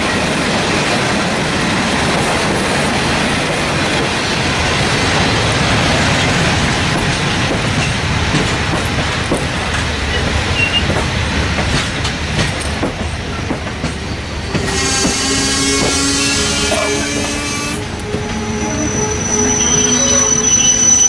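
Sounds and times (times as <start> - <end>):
train wheels rumbling on rails: 0.0 - 20.8
wheel squeal: 10.1 - 10.9, 14.6 - 21.0.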